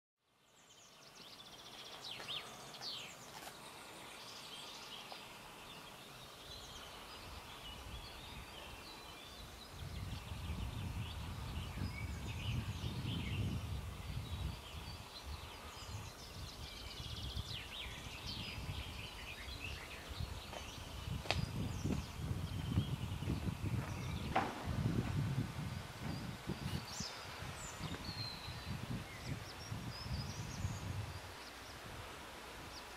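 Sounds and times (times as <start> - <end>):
songbirds chirping and trilling: 0.3 - 32.9
low rumbling noise: 20.2 - 31.2.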